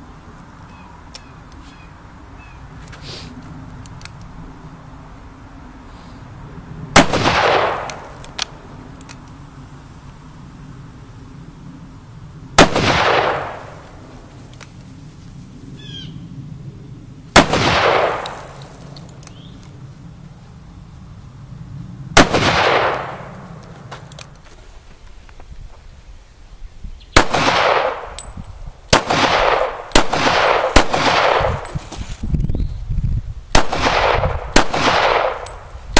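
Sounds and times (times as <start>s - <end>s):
handgun shots with echo: 7.0s - 8.4s, 12.6s - 13.9s, 17.4s - 18.8s, 28.9s - 31.7s, 33.6s - 35.6s.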